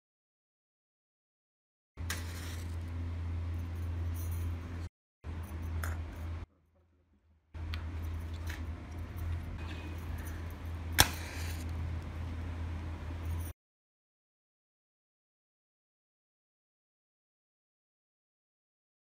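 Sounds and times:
low hum: 2.0 - 13.5
glass and metal clinking: 3.6 - 6.4, 7.8 - 12.4, 13.0 - 13.5.

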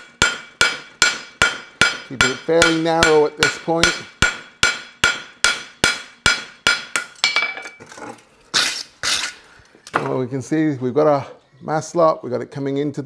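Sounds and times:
hammer ringing on anvil: 0.2 - 7.6.

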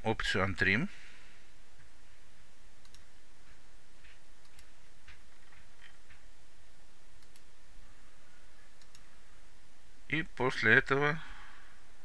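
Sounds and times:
steady background hiss: 0.0 - 12.0
computer mouse clicking: 2.8 - 3.1, 4.4 - 4.7, 7.2 - 7.5, 8.8 - 9.1.

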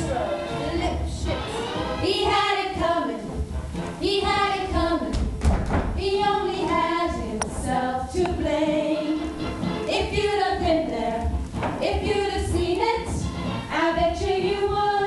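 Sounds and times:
women's chorus singing: 0.0 - 3.3, 4.0 - 5.2, 6.0 - 9.3, 9.9 - 15.0
backing music: 0.0 - 15.0
thump: 5.2 - 6.0.

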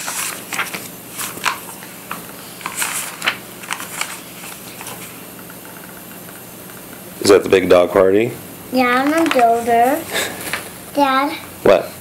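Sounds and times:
book pages rustling: 0.0 - 6.0, 9.0 - 10.8.

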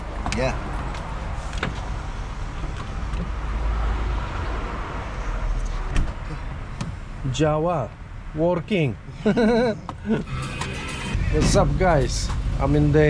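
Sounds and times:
low vehicle rumble: 9.0 - 13.0.

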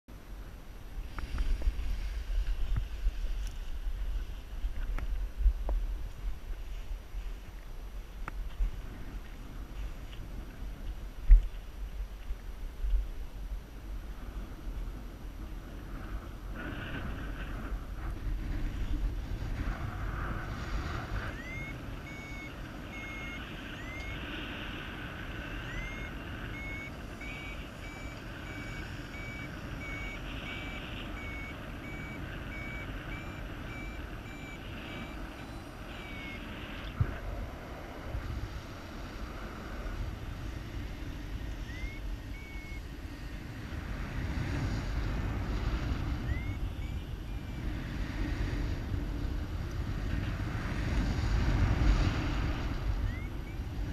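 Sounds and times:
low rush of wind: 0.1 - 53.9
variometer beeping: 21.1 - 24.3, 25.0 - 37.0, 41.3 - 43.4, 46.1 - 48.4, 52.8 - 53.9.

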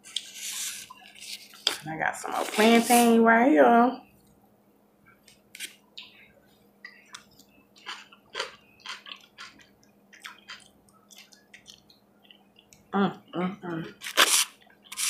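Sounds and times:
person chewing with wet smacks: 5.9 - 6.2, 6.8 - 12.9.

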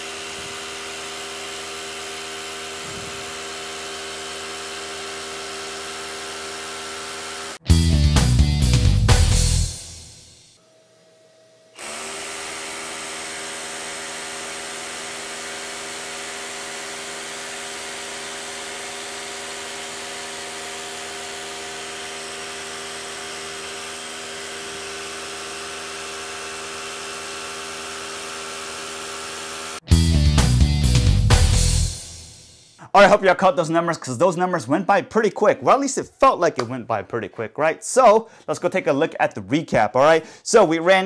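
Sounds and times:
rotary hammer drilling into concrete: 0.0 - 7.6, 11.8 - 29.8.

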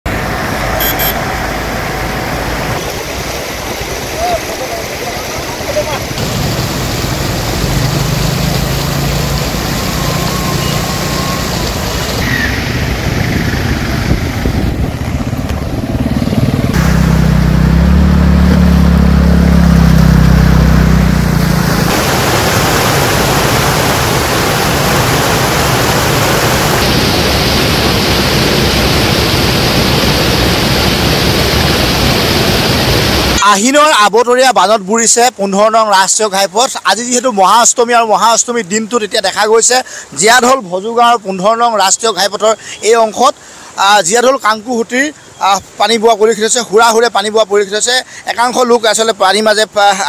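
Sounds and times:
floodwater running: 0.1 - 33.4
water pouring over road edge: 0.1 - 33.4, 41.2 - 50.0
vehicles driving through water: 0.1 - 33.9, 34.5 - 50.0
engine running close by: 6.2 - 33.4.

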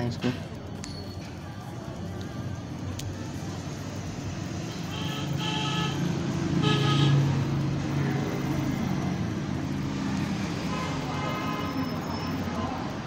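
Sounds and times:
vehicle engine rumble passing: 2.6 - 13.0
horn tooting: 4.7 - 7.4.

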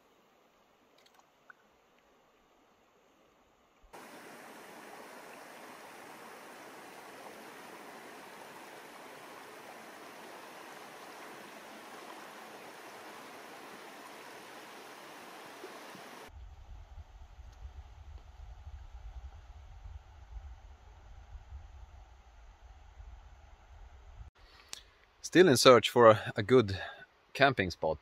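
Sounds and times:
river water flowing: 0.6 - 16.3.

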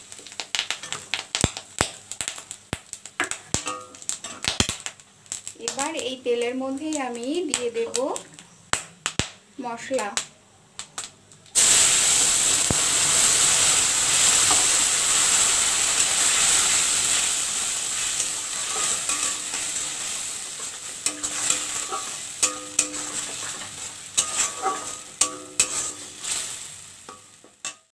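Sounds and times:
paste sizzling in hot oil: 11.6 - 27.9
metal spatula scraping a wok: 14.2 - 27.9.

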